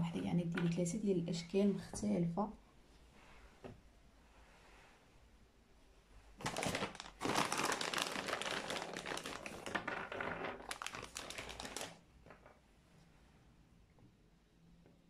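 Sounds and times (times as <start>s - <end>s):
bag crinkling: 6.4s - 12.5s.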